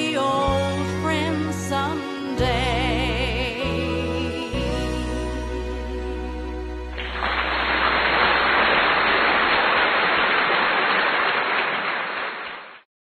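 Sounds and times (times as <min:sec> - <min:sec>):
song: 0:00.0 - 0:08.6.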